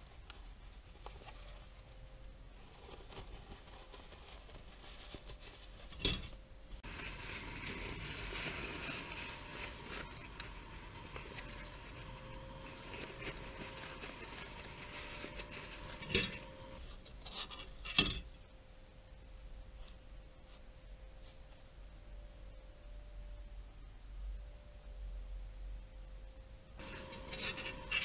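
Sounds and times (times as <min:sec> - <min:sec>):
paper wrapper crinkling: 0:06.8 - 0:16.8, 0:26.8 - 0:28.0.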